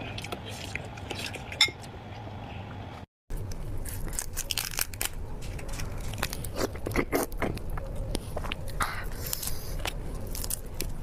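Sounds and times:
prawn shells cracking: 0:03.8 - 0:07.7.

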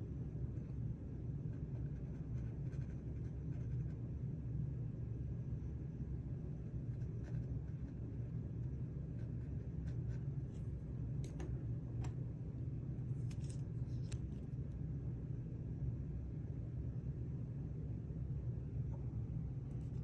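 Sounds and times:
low room hum: 0:00.0 - 0:20.0
pencil scratching on panel: 0:01.4 - 0:04.0, 0:06.6 - 0:10.6.

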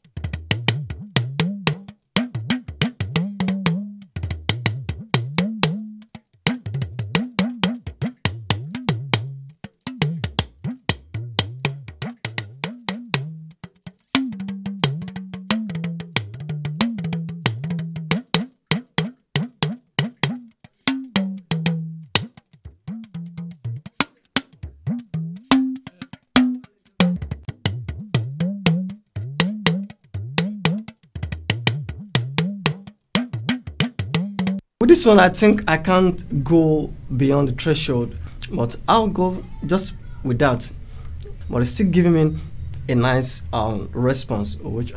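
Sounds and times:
talking drum stick strikes: 0:00.2 - 0:05.9, 0:14.1 - 0:35.0.

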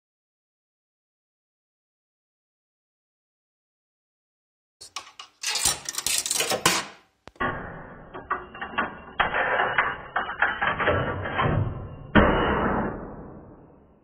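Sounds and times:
coin rattling through jukebox mechanism: 0:04.8 - 0:07.0.

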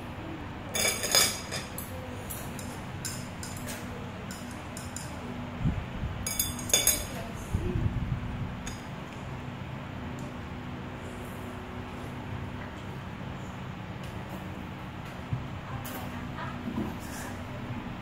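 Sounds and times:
spoon and chopsticks clinking on bowl: 0:00.7 - 0:05.2, 0:06.2 - 0:07.2.

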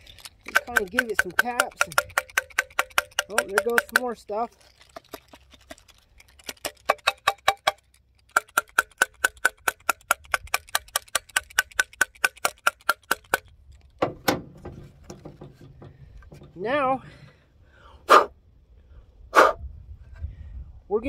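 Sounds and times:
rapid metallic taps on housing: 0:00.4 - 0:04.2, 0:14.0 - 0:16.6
dull thump: 0:14.0 - 0:16.7.

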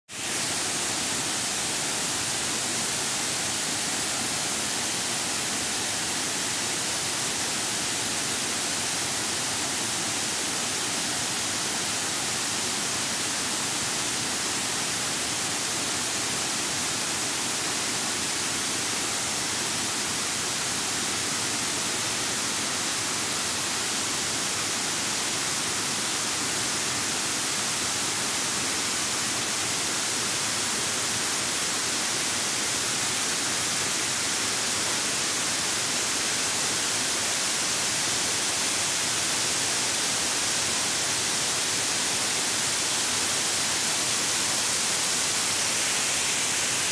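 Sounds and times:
waterfall rushing: 0:00.2 - 0:46.9.

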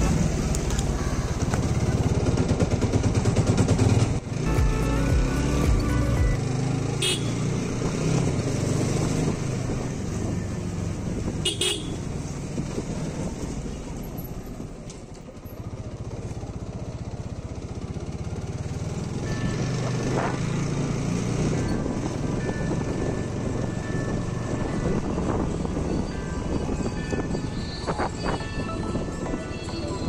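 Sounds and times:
motorcycle engine running: 0:00.0 - 0:23.8.

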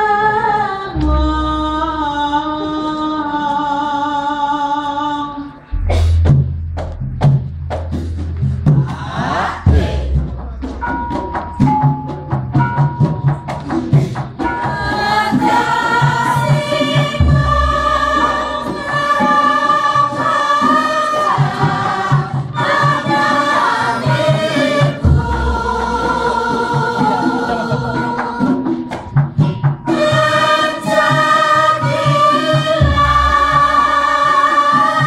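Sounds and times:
group of voices singing: 0:00.0 - 0:06.2, 0:08.7 - 0:11.1, 0:12.6 - 0:29.3, 0:29.9 - 0:35.0
deep gong stroke: 0:05.7 - 0:08.6
drum strokes: 0:05.7 - 0:35.0.

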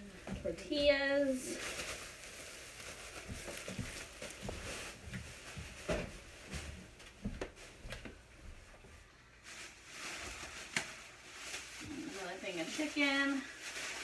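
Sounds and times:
rustling: 0:00.0 - 0:14.0
packages knocking and clicking: 0:02.8 - 0:08.2.

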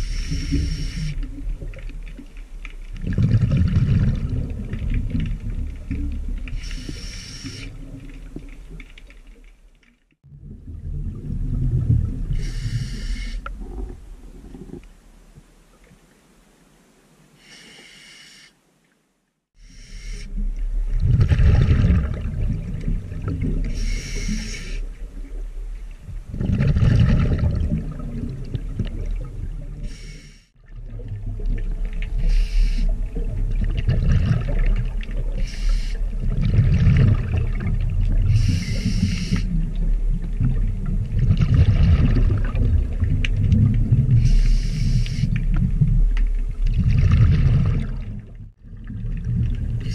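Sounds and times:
hissing regulator inhalations: 0:00.0 - 0:01.2, 0:12.4 - 0:13.5, 0:32.2 - 0:32.9, 0:35.4 - 0:36.0, 0:38.3 - 0:39.5, 0:44.2 - 0:45.3
exhaled bubbles underwater: 0:02.9 - 0:08.8, 0:10.3 - 0:14.8, 0:20.3 - 0:30.0, 0:30.6 - 0:49.9.

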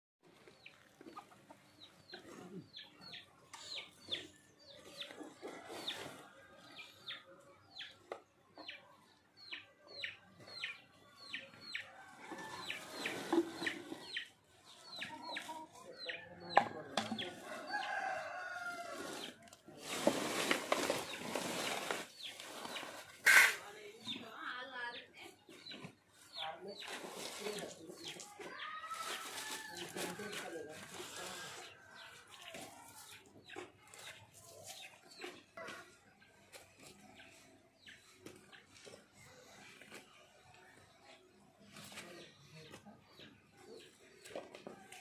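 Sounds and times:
chicks peeping: 0:09.4 - 0:16.4, 0:22.0 - 0:23.5.

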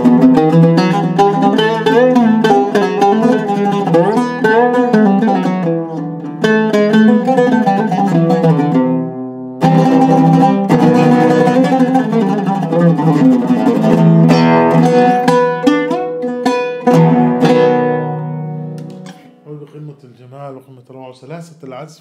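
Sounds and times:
oud plucked with a plectrum: 0:00.0 - 0:19.8.

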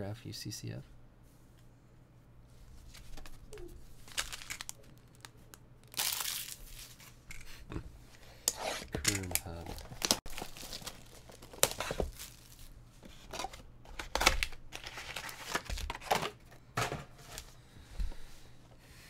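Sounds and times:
card pack wrappers crinkling: 0:04.0 - 0:07.2, 0:08.8 - 0:16.1.

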